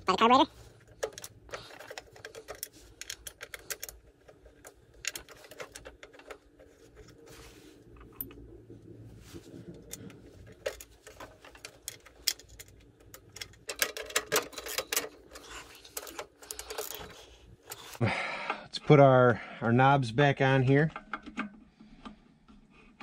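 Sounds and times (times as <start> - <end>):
metal nuts clicking and rattling: 0.8 - 7.2, 9.8 - 18.0.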